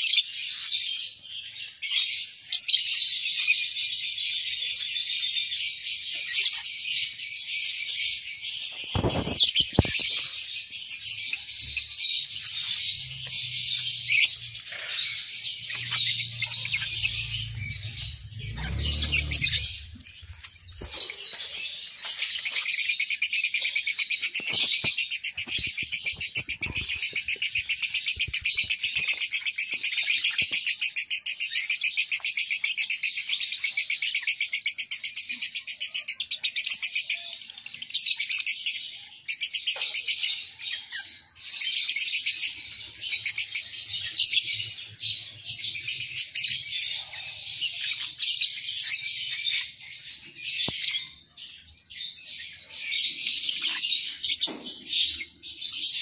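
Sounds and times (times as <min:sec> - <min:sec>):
lovebirds chirping: 0:00.1 - 0:34.4.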